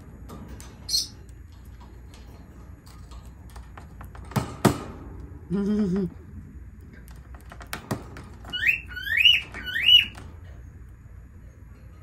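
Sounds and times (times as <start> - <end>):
bird chirping loudly: 8.5 - 10.2.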